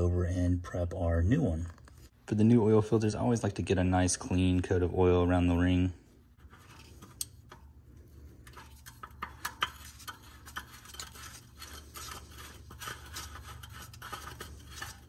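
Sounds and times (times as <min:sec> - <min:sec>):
hand turning metal oil filter: 0:06.4 - 0:15.0.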